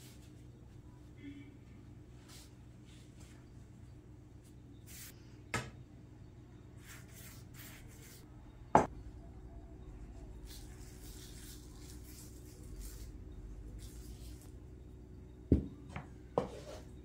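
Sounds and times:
low steady hum: 0.0s - 17.0s
brush strokes: 6.8s - 8.3s.

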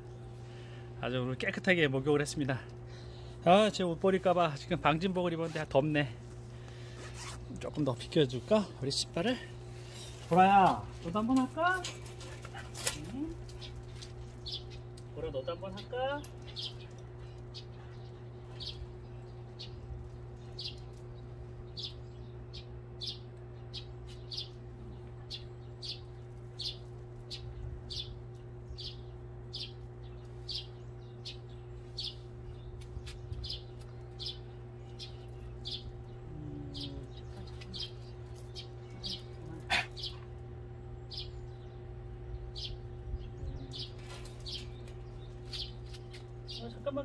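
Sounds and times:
steady low hum: 0.0s - 47.0s
small bird chirping: 13.1s - 40.3s, 40.9s - 47.0s.

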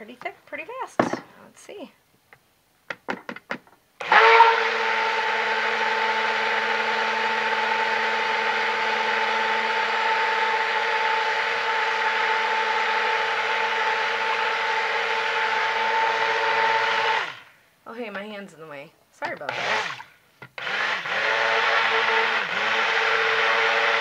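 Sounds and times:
stick blender motor whine: 4.0s - 17.5s, 19.5s - 24.0s.

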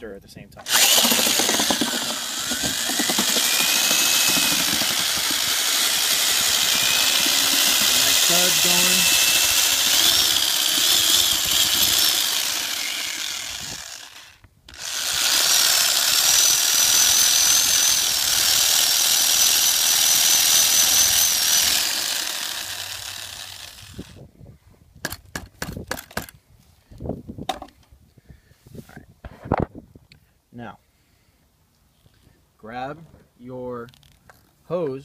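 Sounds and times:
electric drill motor whine: 0.6s - 24.2s.

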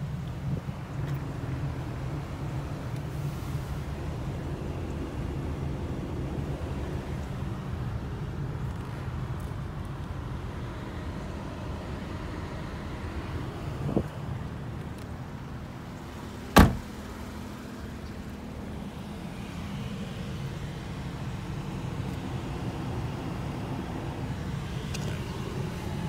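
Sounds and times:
low car cabin rumble: 0.0s - 26.0s
loud sharp thump: 16.6s - 16.9s.

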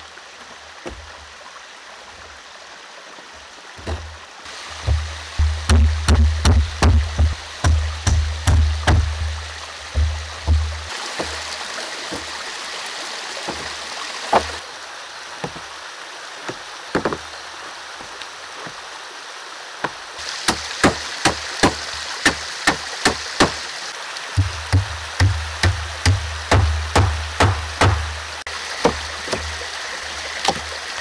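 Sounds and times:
stream rushing: 0.0s - 31.0s
hammer striking nails into wood: 4.9s - 9.2s, 20.5s - 23.6s, 24.7s - 28.1s.

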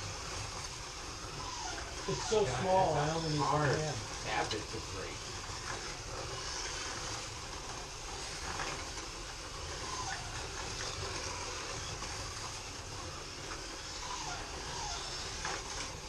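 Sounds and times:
slot cars whirring on track: 0.0s - 16.0s.

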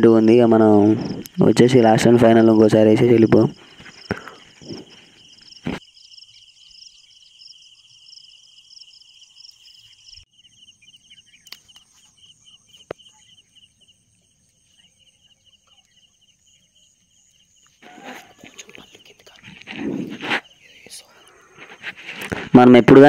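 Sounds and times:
crickets chirping: 0.0s - 23.0s
sharp clicks: 11.4s - 11.9s.

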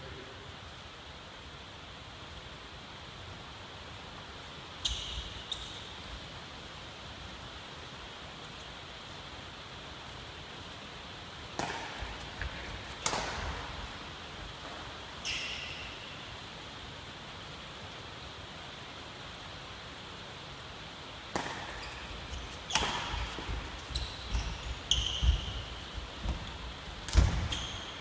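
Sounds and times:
racket hitting shuttlecock: 11.5s - 14.8s, 21.3s - 28.0s.

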